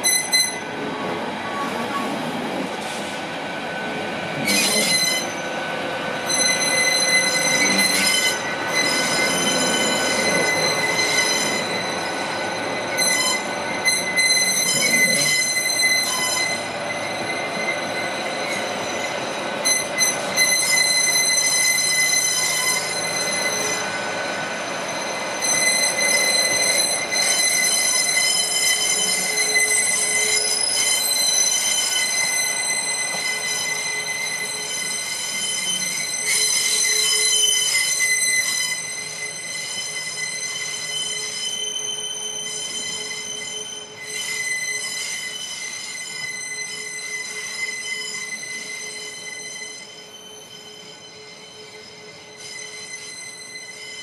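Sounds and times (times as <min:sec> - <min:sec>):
train wheels squealing: 0:00.0 - 0:54.0
train running rumble: 0:00.1 - 0:38.1.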